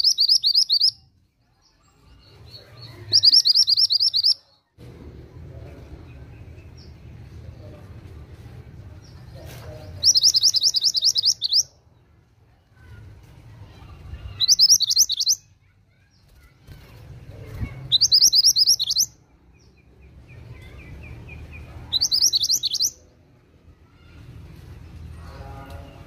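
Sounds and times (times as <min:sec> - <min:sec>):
songbird trilling: 0:00.0 - 0:01.0, 0:02.8 - 0:04.4, 0:10.0 - 0:11.7, 0:14.4 - 0:15.5, 0:17.9 - 0:19.1, 0:21.9 - 0:23.0
soft low bird twitter: 0:00.0 - 0:04.8, 0:09.0 - 0:12.1, 0:13.7 - 0:16.5, 0:17.2 - 0:23.2.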